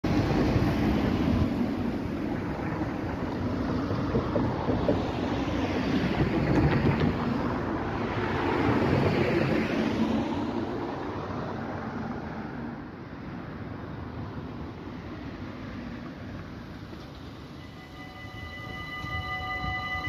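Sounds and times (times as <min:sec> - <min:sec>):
cars driving past: 0:00.0 - 0:20.0
wind on microphone: 0:00.1 - 0:12.6.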